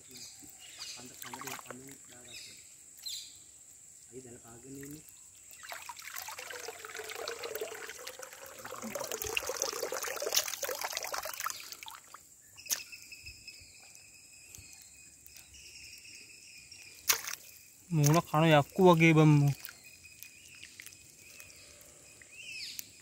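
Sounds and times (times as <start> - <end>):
hands splashing in water: 1.1 - 1.9, 5.6 - 12.8, 17.0 - 18.4, 19.0 - 19.8.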